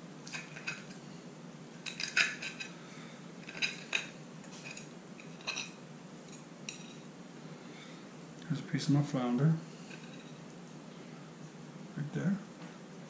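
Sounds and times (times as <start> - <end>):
metal fork clinking on plate: 1.8 - 2.7, 3.4 - 7.1.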